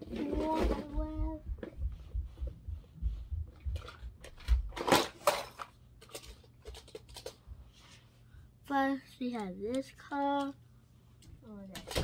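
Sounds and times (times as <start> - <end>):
toy cars clattering in plastic tray: 4.7 - 7.3.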